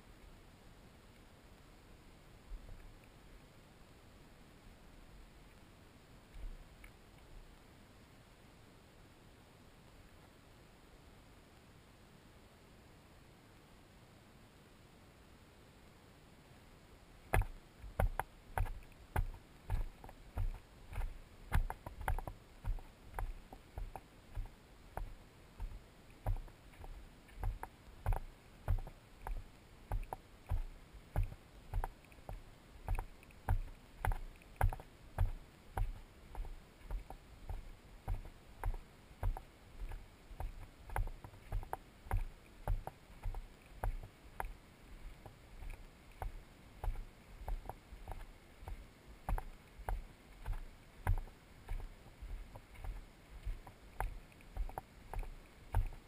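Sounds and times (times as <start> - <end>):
footsteps on gravel trail: 17.3 - 44.6.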